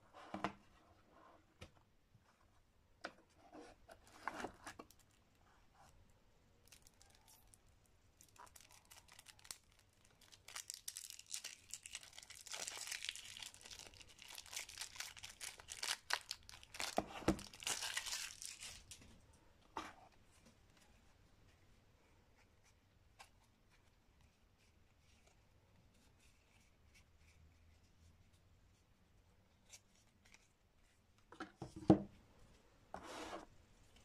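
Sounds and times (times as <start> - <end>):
shrink wrap crinkling: 6.6 - 19.0.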